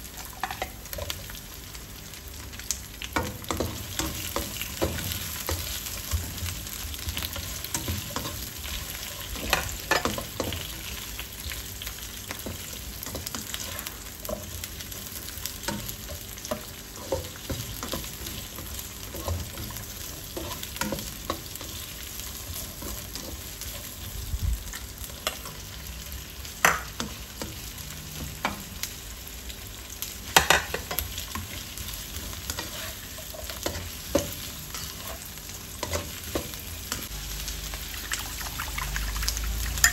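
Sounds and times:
onion and garlic sizzling in oil: 0.0s - 39.9s
spatula scraping wok: 12.4s - 24.3s, 30.4s - 37.2s.

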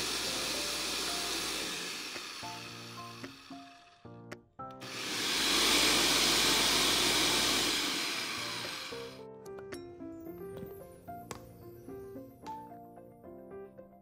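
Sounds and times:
blender motor running: 0.0s - 4.2s, 4.8s - 9.2s.

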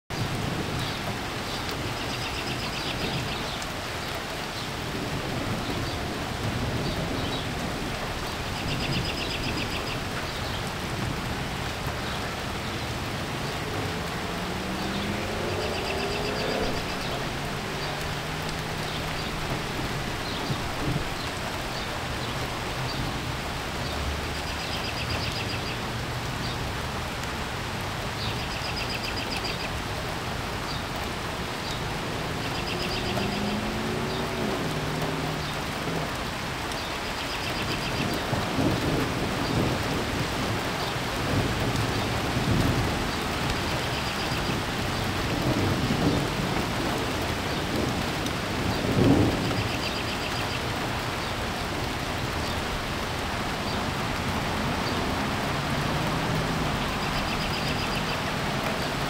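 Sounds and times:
rain hissing: 0.1s - 59.0s
low thunder rumbling: 4.7s - 23.4s, 37.7s - 57.4s.

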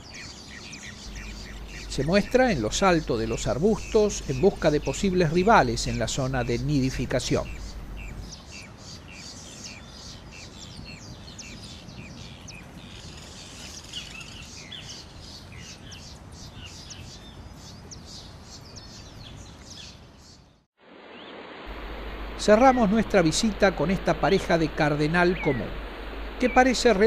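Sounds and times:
wild birds chirping: 0.0s - 27.0s
steady background noise: 21.4s - 27.0s.

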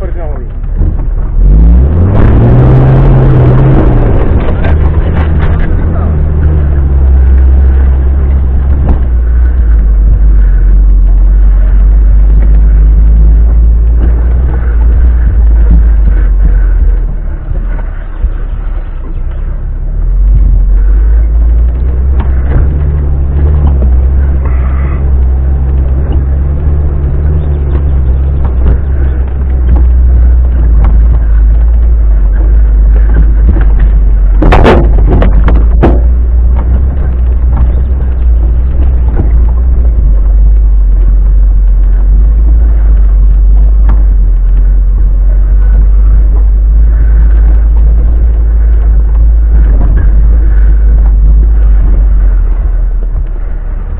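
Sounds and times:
vehicle engine rumbling: 0.0s - 53.9s.

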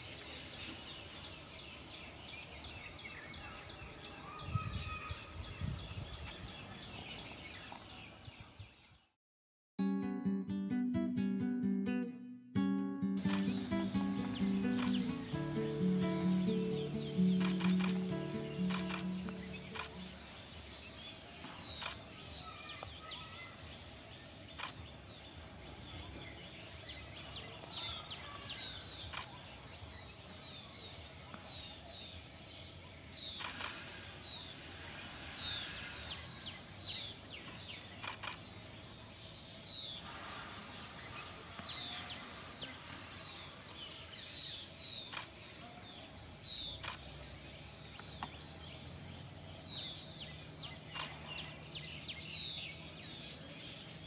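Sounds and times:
birds chirping: 13.2s - 25.3s
sharp clicks: 13.3s - 15.7s, 17.2s - 20.1s.

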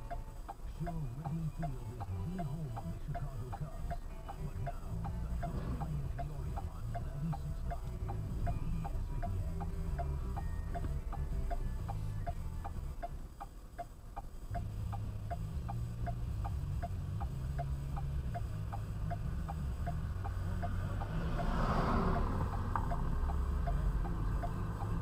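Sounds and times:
car engine idling hum: 0.0s - 25.0s
car indicator ticking: 0.0s - 25.0s
passing car rush: 16.7s - 25.0s.

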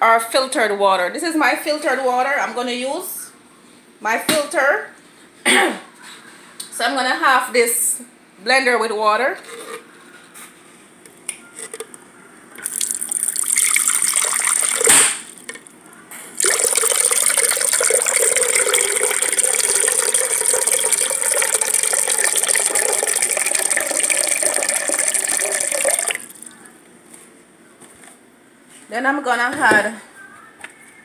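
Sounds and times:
water pouring into a jar: 12.6s - 15.4s, 16.4s - 26.5s.

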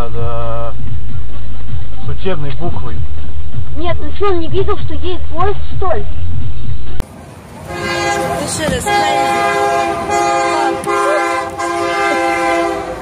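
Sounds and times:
locomotive air horn blasts: 7.6s - 13.0s.

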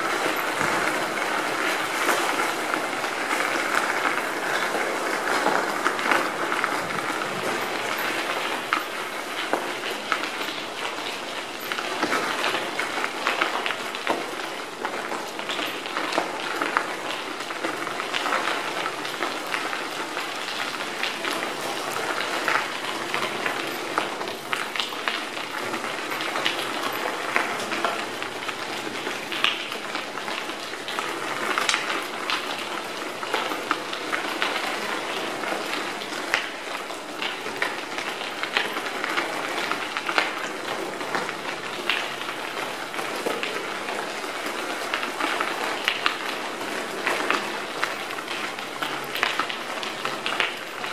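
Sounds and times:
bicycle tyres crunching on gravel: 0.0s - 34.0s
gravel clicks and rattles: 0.0s - 50.9s.

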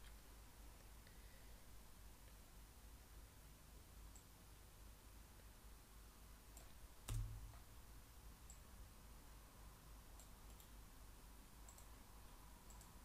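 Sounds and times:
computer mouse clicks: 6.5s - 7.6s, 10.2s - 10.8s, 11.6s - 12.0s, 12.6s - 13.0s.

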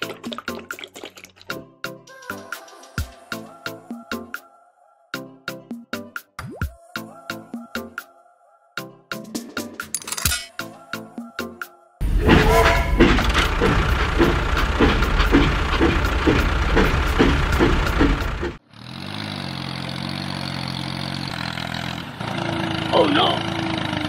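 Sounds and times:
machine running with regular pulse: 12.0s - 18.6s.

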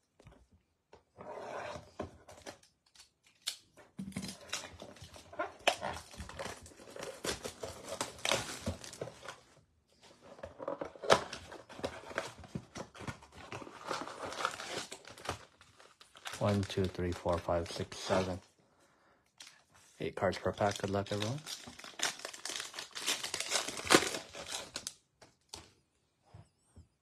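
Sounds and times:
plastic wrap crinkling and rustling: 4.3s - 9.5s, 10.2s - 18.4s, 20.2s - 25.0s.

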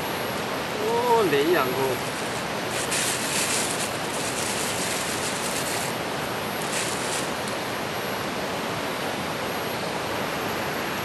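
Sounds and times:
stream water rushing: 0.5s - 7.9s
plastic sacking rustling: 1.7s - 7.6s.

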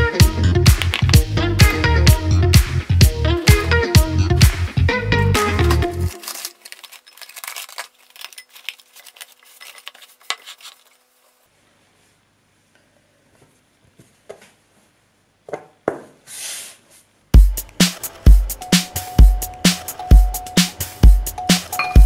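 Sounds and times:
cling film crackling: 0.7s - 1.2s, 5.4s - 11.3s.

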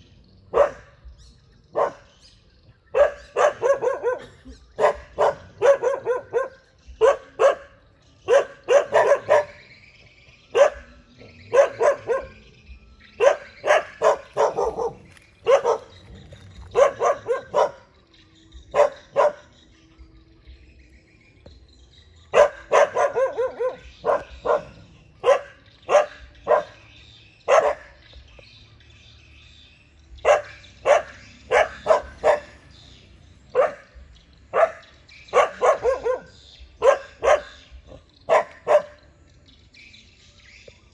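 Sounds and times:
dogs barking: 0.0s - 19.7s, 22.3s - 28.5s, 29.9s - 40.2s.

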